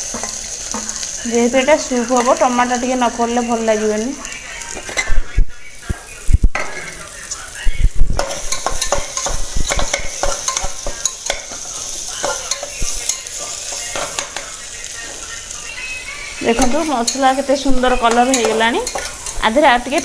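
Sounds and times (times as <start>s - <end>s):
food sizzling in oil: 0.0s - 20.0s
metal spatula scraping a pot: 16.4s - 19.6s.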